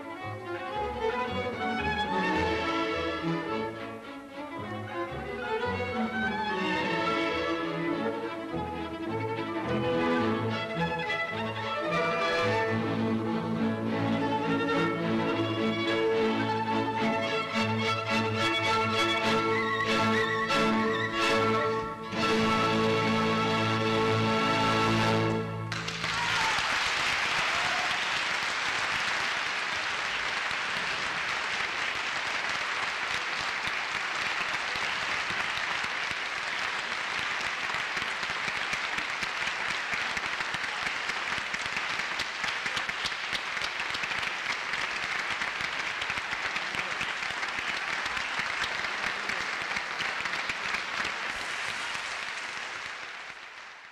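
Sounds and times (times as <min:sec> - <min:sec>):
audience applauding: 0:22.3 - 0:53.9.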